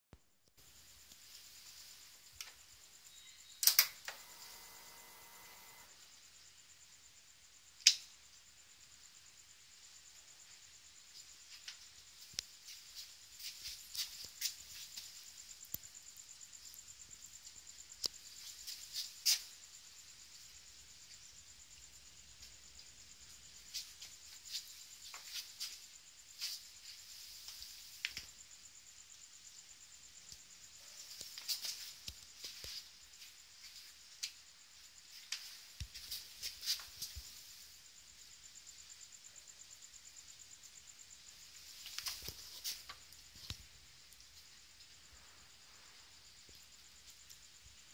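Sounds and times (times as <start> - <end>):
faint electrical hum: 0.6 - 28.6
scattered clicks: 3.6 - 4.6.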